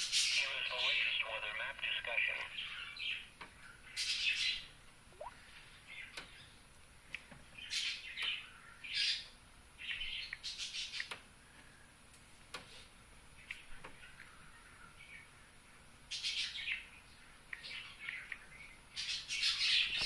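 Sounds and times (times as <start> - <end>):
birds chirping and calling: 0.0 - 6.5, 16.1 - 20.0.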